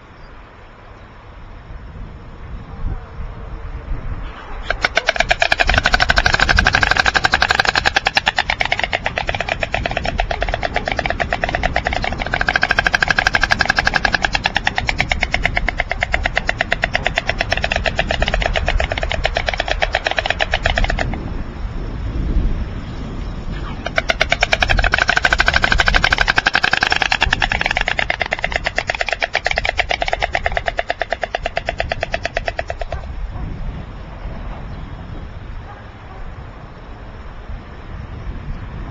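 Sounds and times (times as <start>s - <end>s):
storks clattering bills: 4.6s - 21.2s, 23.8s - 33.1s.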